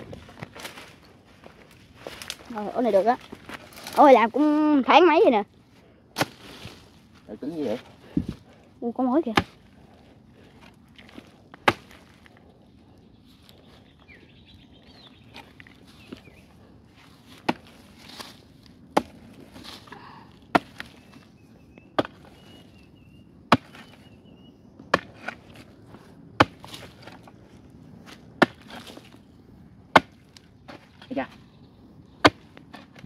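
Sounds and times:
digging tool chopping hard earth: 0:06.1 - 0:06.7, 0:09.2 - 0:09.6, 0:10.6 - 0:12.3, 0:17.2 - 0:21.2, 0:22.0 - 0:22.6, 0:23.5 - 0:24.1, 0:24.8 - 0:27.3, 0:28.0 - 0:29.2, 0:29.9 - 0:31.3, 0:32.2 - 0:33.0.

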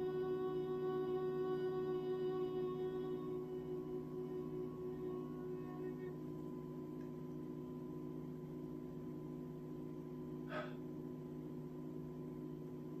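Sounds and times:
low room hum: 0:00.0 - 0:13.0
person breathing: 0:10.5 - 0:10.8.

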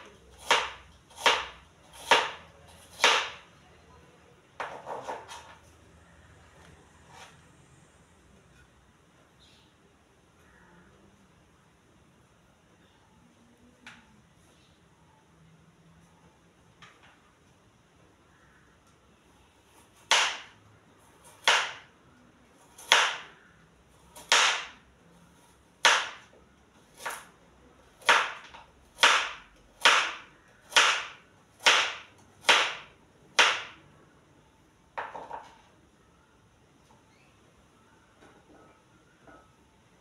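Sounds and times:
knife chopping on cutting board: 0:00.4 - 0:03.4.

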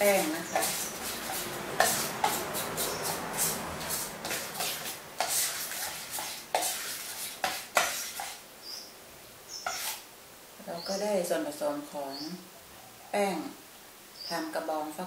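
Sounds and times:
spoon stirring batter in metal bowl: 0:00.0 - 0:08.4, 0:09.6 - 0:10.0.

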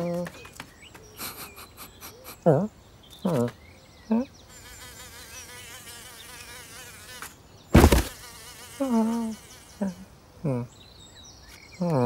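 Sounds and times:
cartoon fly buzzing: 0:04.5 - 0:10.1
cardboard box crashing: 0:07.7 - 0:08.2.

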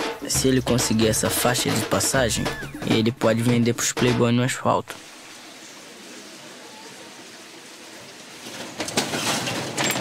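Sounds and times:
street ambience hiss: 0:00.0 - 0:09.9
metal shutter rattling: 0:08.4 - 0:10.0.

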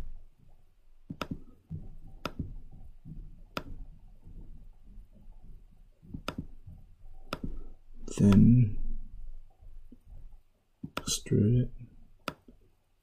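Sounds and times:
computer mouse clicking: 0:01.0 - 0:04.4, 0:06.0 - 0:08.6, 0:09.5 - 0:11.2, 0:12.2 - 0:12.6.

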